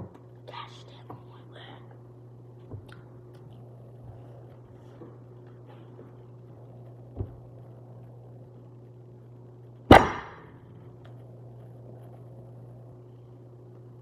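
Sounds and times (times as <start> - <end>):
steady low hum: 0.0 - 14.0
sharp loud knock: 9.9 - 10.4.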